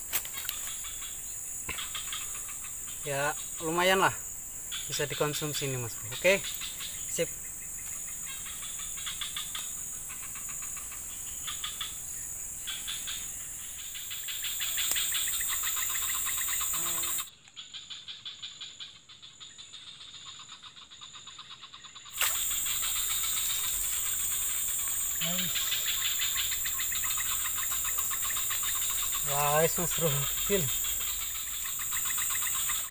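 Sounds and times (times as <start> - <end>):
insects high-pitched drone: 0.0 - 32.9
insects pulsing trills: 0.0 - 32.9.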